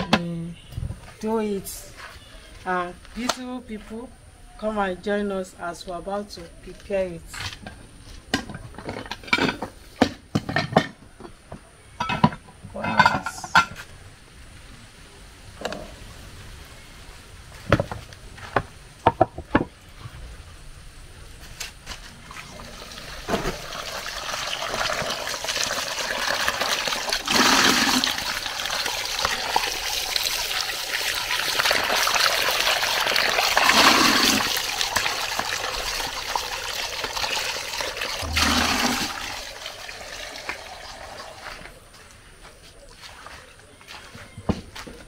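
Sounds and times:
water splashes: 22.3s - 41.7s
tap water gushing into bowl: 22.3s - 41.8s.

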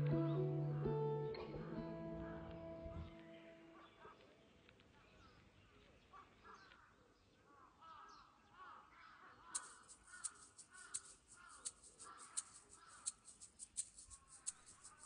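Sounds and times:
faint bird calls: 3.0s - 13.4s
sharp ticks: 9.6s - 15.0s.

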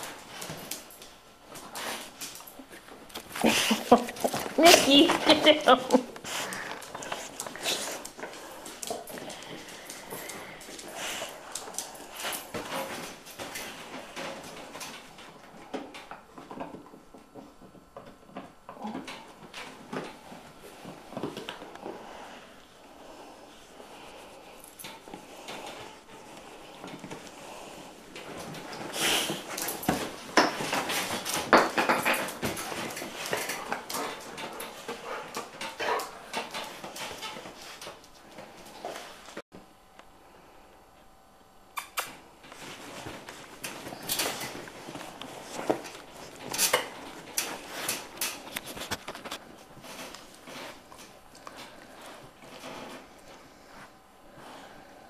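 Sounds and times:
dogs scuffling: 0.0s - 39.4s, 42.0s - 54.9s.

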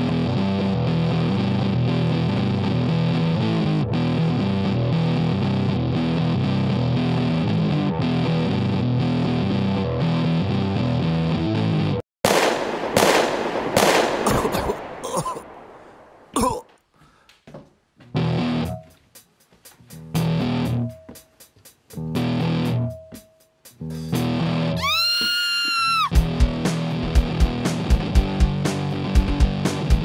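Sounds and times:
distorted electric guitar music: 0.0s - 12.0s, 18.1s - 18.8s, 20.0s - 21.0s, 22.0s - 23.1s, 23.8s - 24.9s, 26.1s - 30.0s
loud bangs: 12.2s - 16.4s.

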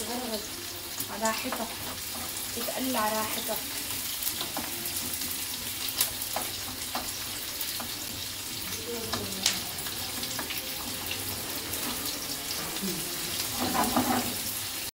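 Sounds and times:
onion sizzling in oil: 0.0s - 14.9s
utensil clicking against pan: 4.2s - 8.0s.

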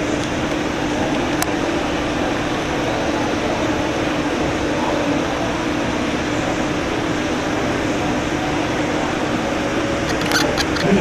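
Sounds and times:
machinery drone: 0.0s - 11.0s.

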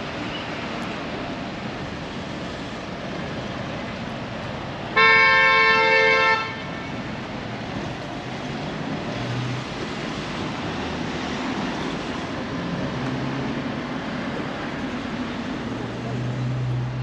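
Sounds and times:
steady traffic noise: 0.0s - 17.0s
vehicle horn chord: 5.0s - 6.7s.

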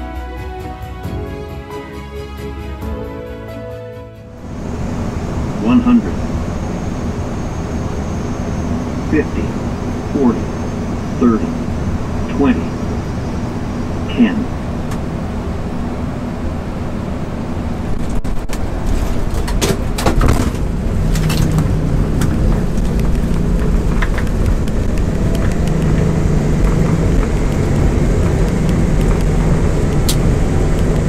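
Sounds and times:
low hum: 4.2s - 31.0s
engine and wheel rumble: 4.3s - 31.0s
sharp clicks and knocks: 18.1s - 31.0s.

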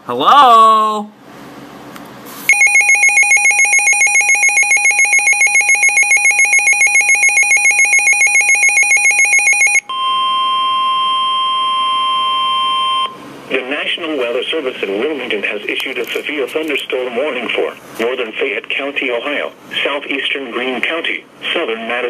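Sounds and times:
rapid pulsing electronic beep: 2.5s - 9.8s
steady alarm tone: 2.5s - 13.2s.

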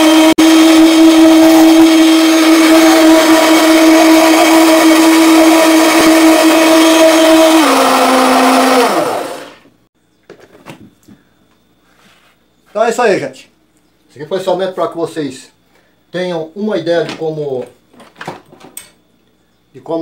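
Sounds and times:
blender motor humming: 0.0s - 9.8s.

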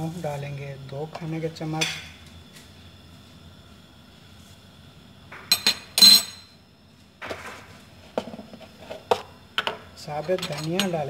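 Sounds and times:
metal kitchenware clinking: 5.5s - 6.5s, 10.3s - 11.0s.

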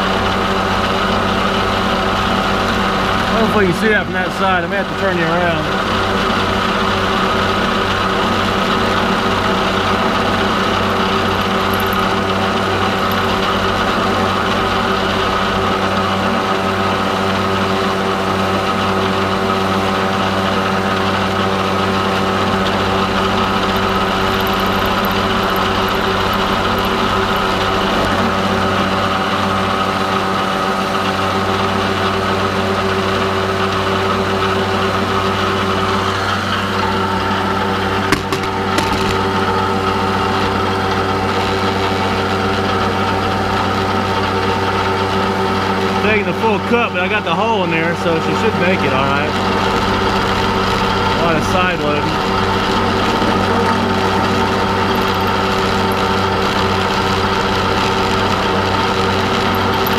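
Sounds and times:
milling machine hum: 0.0s - 31.1s, 47.9s - 59.9s
end mill cutting metal: 21.3s - 29.6s, 49.3s - 59.9s.

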